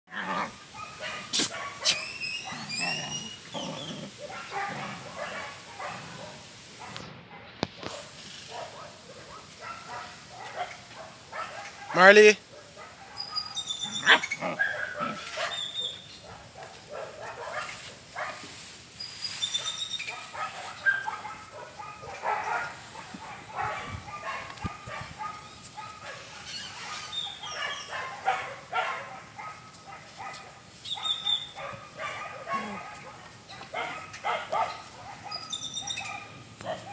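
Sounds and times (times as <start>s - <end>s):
puppies play-fighting: 0.1s - 5.2s, 13.0s - 17.0s
puppies yipping and barking: 0.1s - 6.3s, 12.8s - 18.3s, 19.0s - 36.9s.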